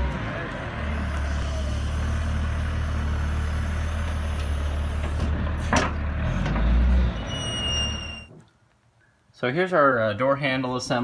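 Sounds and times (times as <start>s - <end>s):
diesel engine rumbling: 0.0s - 8.4s
short high squeal: 7.1s - 8.3s.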